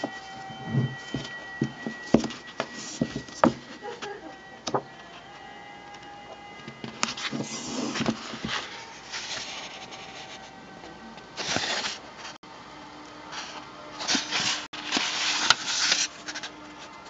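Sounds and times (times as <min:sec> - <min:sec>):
paper rustling and crackling: 0:06.8 - 0:10.5, 0:11.4 - 0:12.4, 0:13.4 - 0:17.0.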